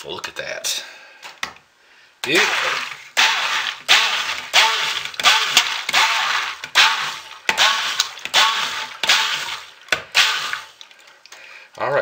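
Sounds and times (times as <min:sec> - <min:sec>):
stick blender whirring: 0:02.2 - 0:10.8.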